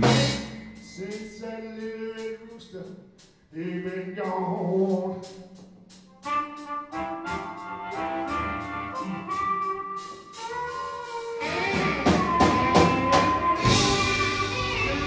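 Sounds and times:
electric blues band playing: 0.0s - 2.3s, 6.2s - 15.0s.

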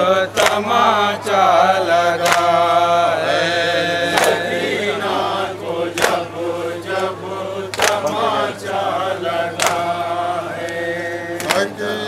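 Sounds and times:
men chanting in unison: 0.0s - 12.0s
chest-beating slaps: 4.1s - 4.4s, 5.9s - 6.3s, 7.7s - 8.2s.

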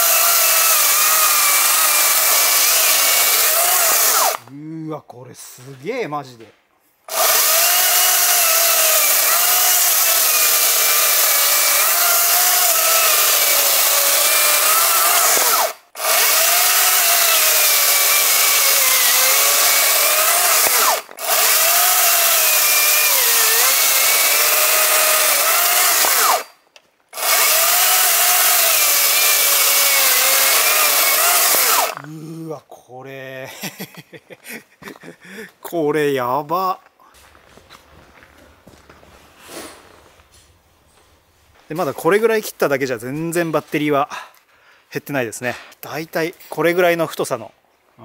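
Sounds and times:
chainsaw cutting through log: 0.0s - 4.4s, 7.1s - 32.5s.

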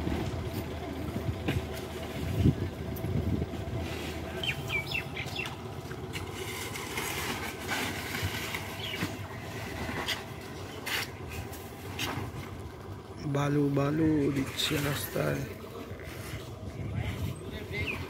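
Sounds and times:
truck engine idling: 0.0s - 18.0s
birds chirping: 4.1s - 6.4s, 8.4s - 11.5s, 12.9s - 18.0s.

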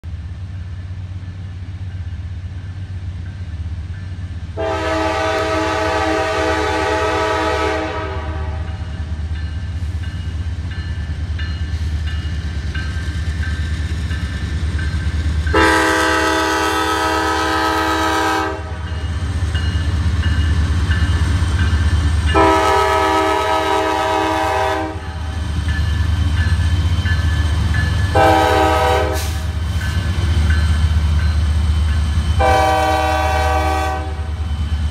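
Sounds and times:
diesel locomotive engine rumble: 0.0s - 34.9s
train air horn blasts: 4.6s - 8.9s, 15.5s - 18.9s, 22.3s - 25.2s, 28.1s - 29.6s, 32.4s - 34.4s.

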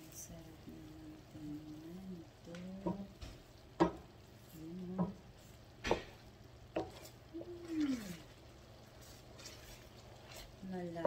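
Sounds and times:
soft sizzle: 0.0s - 11.0s
thick syrup bubbling: 0.6s - 11.0s
wooden spoon scraping a pan: 6.7s - 11.0s.

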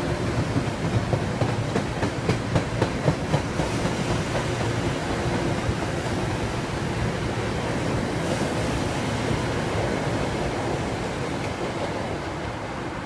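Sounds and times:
train wheels clicking over rail joints: 0.0s - 6.4s
electric train rumbling past: 0.0s - 13.0s.

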